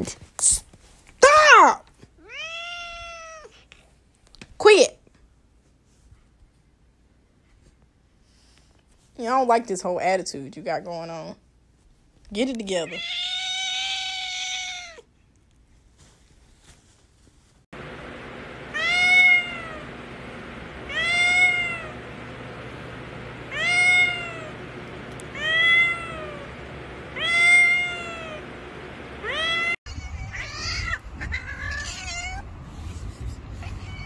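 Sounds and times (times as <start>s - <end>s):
cat meowing: 2.2s - 3.5s, 12.9s - 15.0s, 18.7s - 19.8s, 20.9s - 22.0s, 23.5s - 24.5s, 25.4s - 26.5s, 27.2s - 28.4s, 29.2s - 32.5s, 33.6s - 34.0s
second cat meowing: 2.2s - 3.5s.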